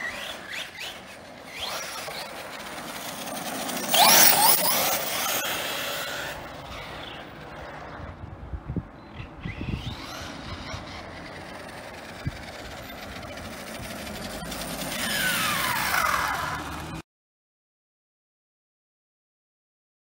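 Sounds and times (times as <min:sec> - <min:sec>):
electric motor whine: 0:00.0 - 0:07.9, 0:09.5 - 0:17.0.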